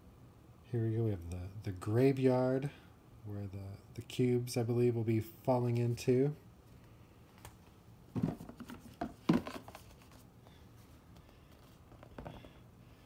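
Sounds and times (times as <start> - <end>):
cardboard boards knocking and scraping: 8.2 - 10.0.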